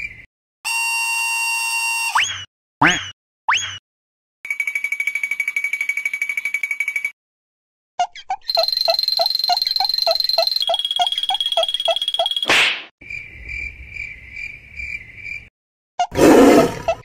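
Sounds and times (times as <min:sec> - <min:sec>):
rapid chirping tick: 0:08.5 - 0:12.5.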